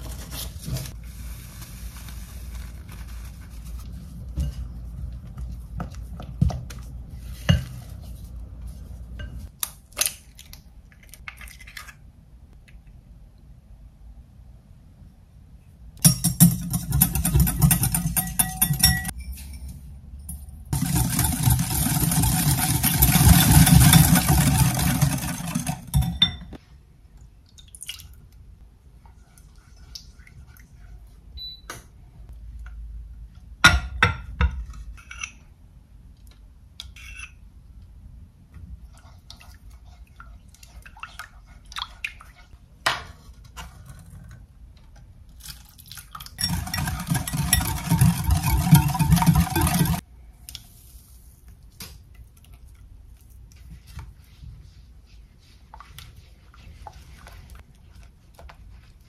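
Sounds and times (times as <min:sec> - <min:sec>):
utensils and dishes clinking: 0:16.0 - 0:26.5, 0:46.4 - 0:50.0.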